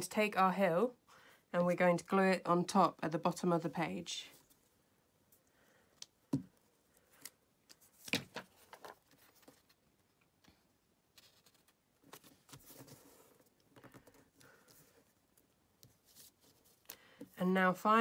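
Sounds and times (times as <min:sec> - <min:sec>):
paper rustling: 0:07.7 - 0:09.8.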